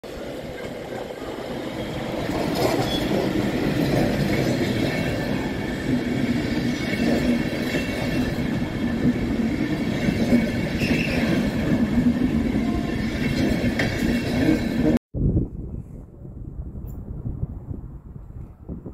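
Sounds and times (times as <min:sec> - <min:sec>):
train coaches rumbling past: 0:00.0 - 0:15.0
wheels clacking over rail joints: 0:00.2 - 0:15.0
wheel squeals: 0:00.6 - 0:05.2, 0:10.0 - 0:11.8.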